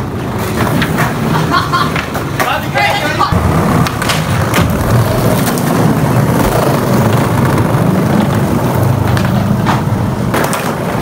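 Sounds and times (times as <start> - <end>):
skateboard clacks: 0.0 - 11.0
skateboard wheels rolling on tiles: 0.0 - 11.0.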